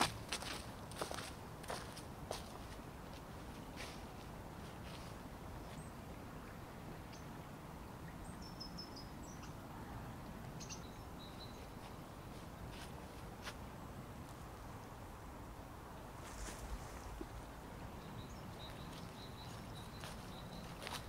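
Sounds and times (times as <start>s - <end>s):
small bird chirping: 18.0s - 21.0s.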